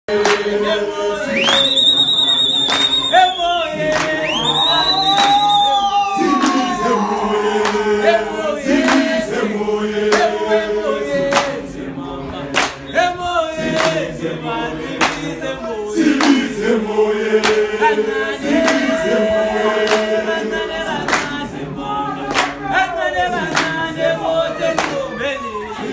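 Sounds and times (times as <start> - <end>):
men singing in harmony: 0.1 - 25.9
handclaps: 0.2 - 0.5, 1.4 - 5.7, 6.3 - 6.8, 7.6 - 7.8, 8.8 - 9.2, 10.1 - 10.3, 11.3 - 11.6, 12.5 - 12.9, 13.7 - 14.1, 15.0 - 15.4, 16.1 - 16.5, 17.4 - 17.7, 18.6 - 19.0, 19.8 - 20.1, 21.0 - 21.4, 22.3 - 22.6, 23.5 - 23.8, 24.7 - 25.0.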